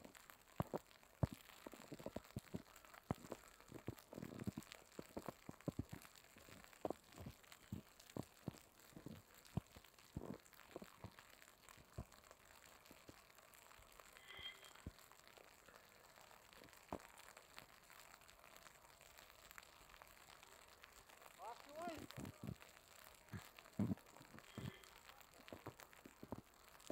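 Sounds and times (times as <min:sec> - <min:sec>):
faint clicks and crackles: 0:00.0 - 0:26.9
faint high chirp: 0:14.2 - 0:14.9.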